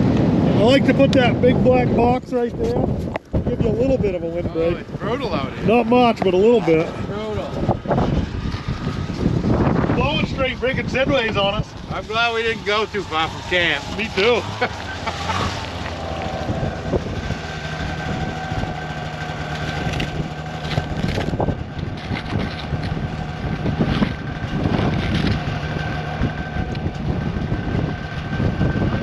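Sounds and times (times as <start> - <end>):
engine hum: 0.0 - 29.0
gusting wind on microphone: 0.0 - 29.0.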